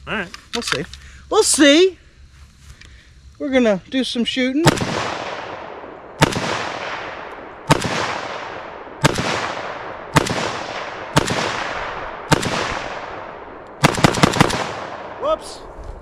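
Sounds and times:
rifle single shots echoing: 4.6 - 15.7.

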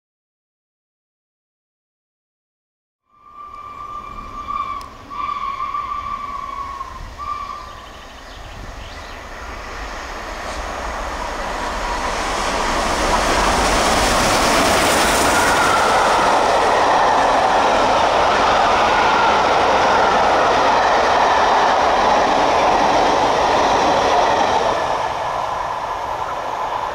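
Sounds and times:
steam whistle blasts: 3.1 - 7.9
train wheels rushing on rail: 3.2 - 26.9.

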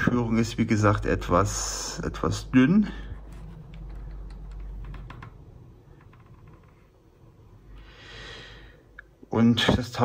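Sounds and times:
cable handling clicks and rustles: 3.1 - 7.0.

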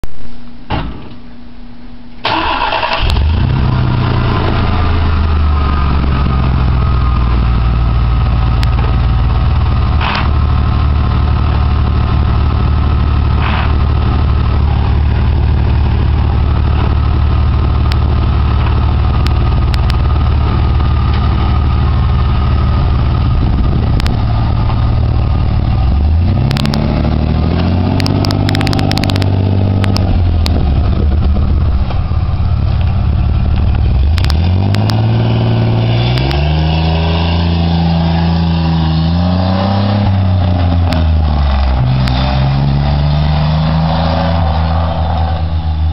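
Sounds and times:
pickup engine starting and idling: 2.1 - 38.8
engine revving: 2.2 - 45.9.

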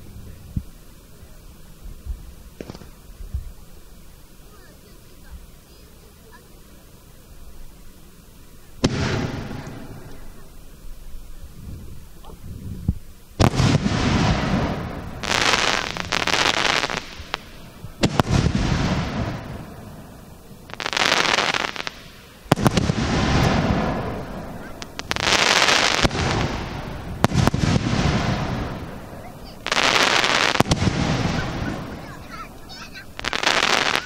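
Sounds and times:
firework bangs: 2.5 - 3.5, 8.8 - 10.7, 13.4 - 34.0
small firework pops: 2.6 - 3.5, 8.8 - 10.4, 12.2 - 19.6, 20.7 - 28.9, 29.6 - 32.1, 33.2 - 34.0.

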